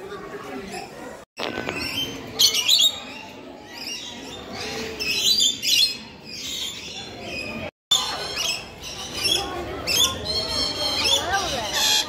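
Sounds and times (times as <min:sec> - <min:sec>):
parrots screeching: 0:08.2 - 0:12.0.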